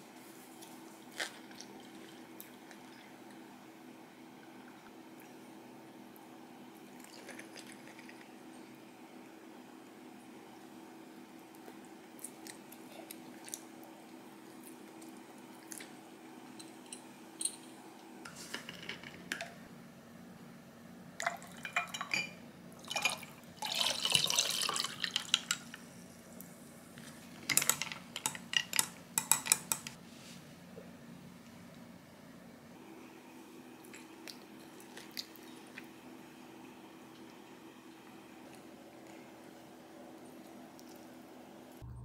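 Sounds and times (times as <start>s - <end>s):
drink pouring: 22.8s - 25.4s.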